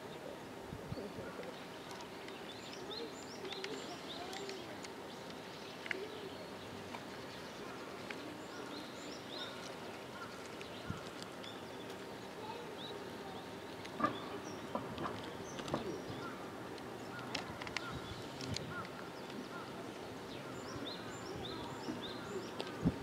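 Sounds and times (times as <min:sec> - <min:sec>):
faint distant voices: 0:00.0 - 0:23.0
small birds chirping: 0:00.0 - 0:23.0
steady background noise: 0:00.0 - 0:23.0
light clicks: 0:13.8 - 0:19.5.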